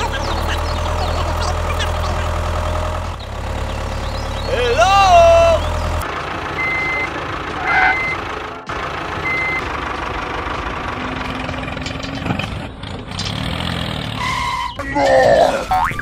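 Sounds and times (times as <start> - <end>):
engine running: 0.0 - 16.0
reversing beeper beeps: 6.6 - 8.2, 9.2 - 9.6.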